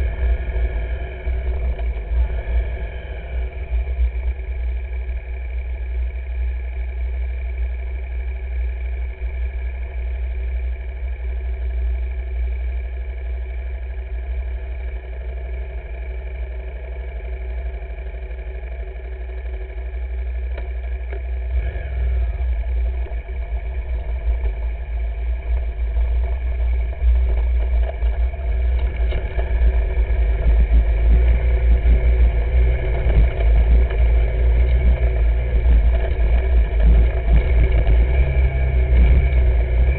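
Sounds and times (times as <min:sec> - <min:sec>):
wind rumble on microphone: 0:00.0 - 0:06.2, 0:21.1 - 0:39.9
motorcycle engine running: 0:00.0 - 0:39.9.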